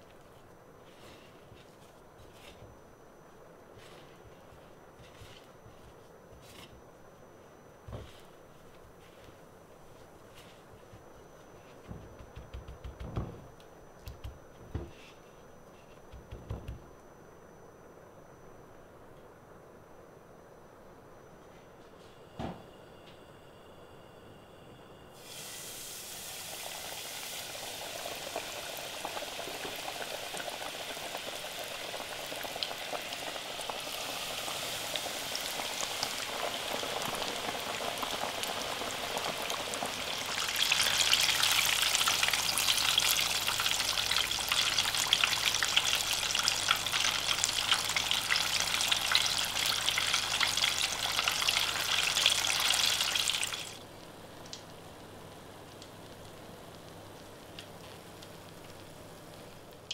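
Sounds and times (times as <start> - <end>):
chicken deep-frying in hot oil: 25.1 - 59.9.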